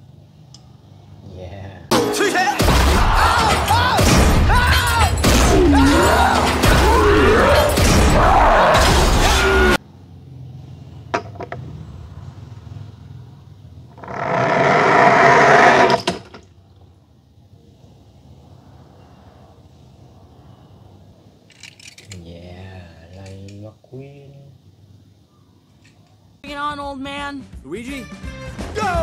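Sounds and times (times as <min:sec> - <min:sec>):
cartoon music with crash effects: 0:01.9 - 0:09.8.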